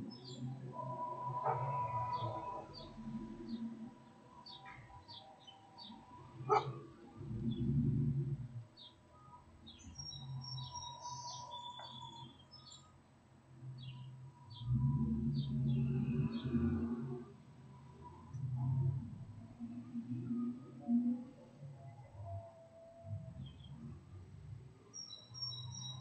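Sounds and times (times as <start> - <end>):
small birds chirping: 0.0 - 0.7, 1.5 - 7.8, 8.8 - 13.0, 13.7 - 16.6, 24.9 - 26.0
low street traffic rumble: 0.0 - 26.0.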